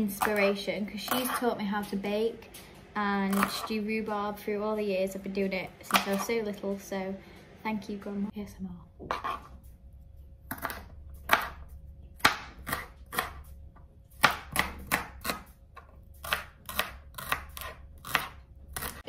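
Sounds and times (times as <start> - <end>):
knife chopping on board: 3.3 - 3.7, 5.9 - 6.3, 9.0 - 9.5, 10.5 - 13.5, 14.2 - 19.0.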